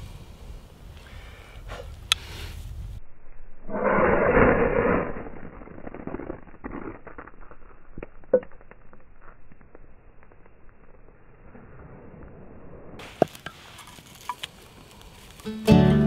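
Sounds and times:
small clicks and crackles: 5.2s - 11.4s, 13.0s - 15.6s.

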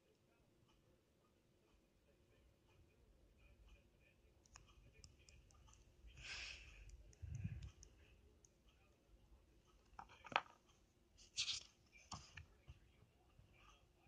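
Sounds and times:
pencil rustle on paper: 10.3s - 12.9s.

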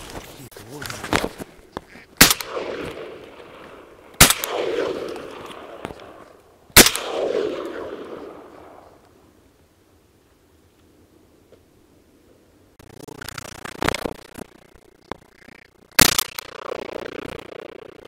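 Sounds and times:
shotgun shots: 2.2s - 6.2s, 6.8s - 8.9s
rolling echo: 2.2s - 9.4s.

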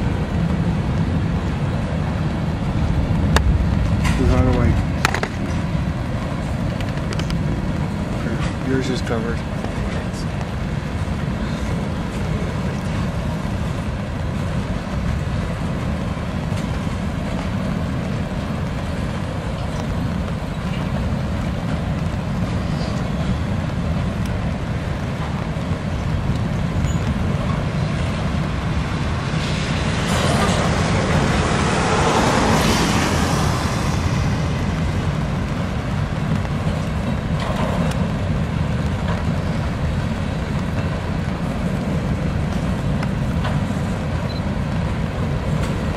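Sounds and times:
train wheels rumbling on rails: 0.0s - 45.9s
rushing hiss: 27.6s - 37.1s.

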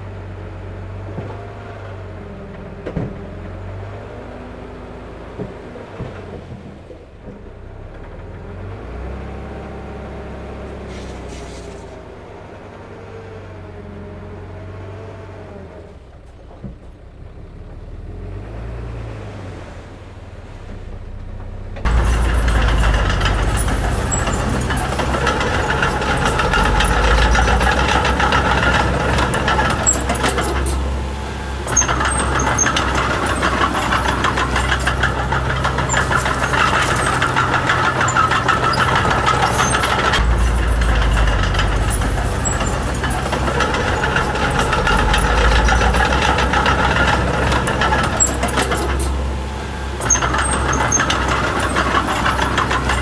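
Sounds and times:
heavy machinery diesel engine: 0.0s - 53.0s.

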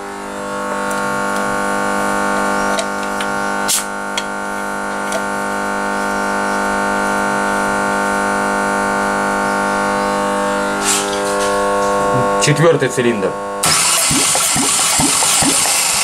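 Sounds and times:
starter motor cranking engine: 13.6s - 16.0s.

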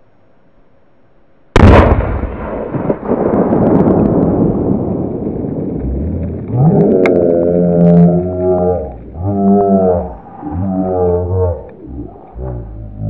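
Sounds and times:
rough noise: 5.6s - 13.0s.

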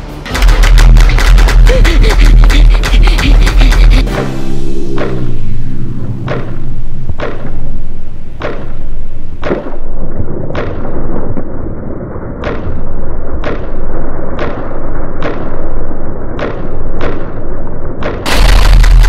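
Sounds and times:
soundtrack music with heavy drums: 0.0s - 8.8s.

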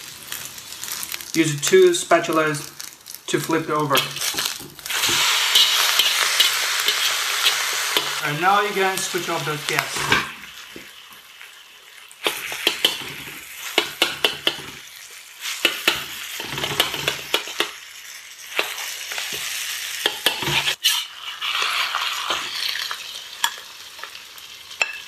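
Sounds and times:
food sizzling in a wok: 0.0s - 25.0s
metal utensils scraping wok: 3.3s - 10.5s, 12.2s - 17.7s, 18.5s - 23.6s.

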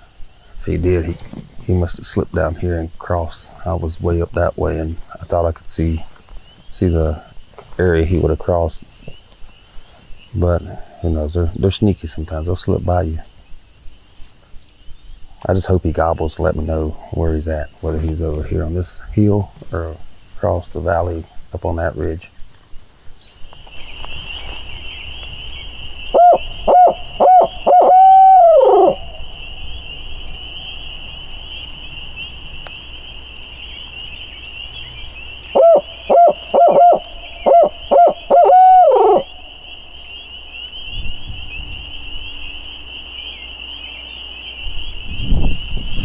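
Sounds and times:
owl call hoots: 26.0s - 33.2s, 33.8s - 44.6s.

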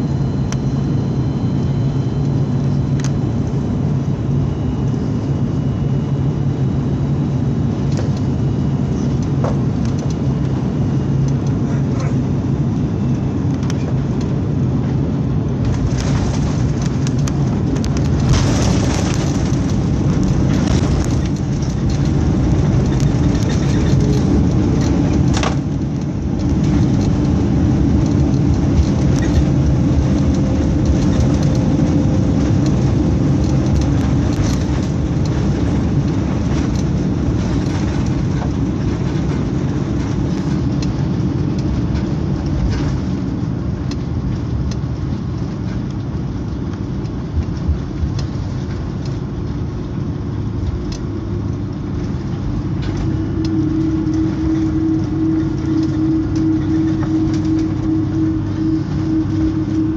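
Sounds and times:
jet engines at low power: 0.0s - 59.9s
wheels rumbling on runway: 0.0s - 59.9s
steady tone: 52.6s - 59.9s.

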